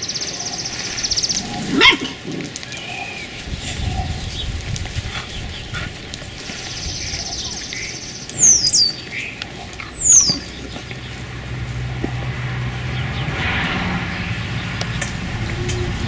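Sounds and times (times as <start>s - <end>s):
high-pitched animal calls: 0.0s - 3.4s, 6.4s - 10.8s.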